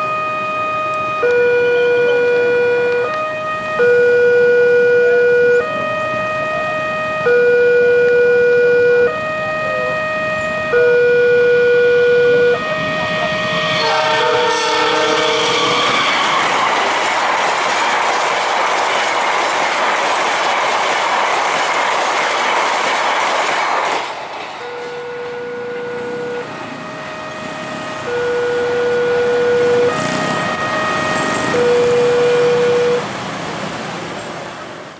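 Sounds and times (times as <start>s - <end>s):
two-tone warning signal: 0.0s - 16.6s, 24.6s - 33.1s
train wheels rumbling on rails: 12.3s - 34.9s.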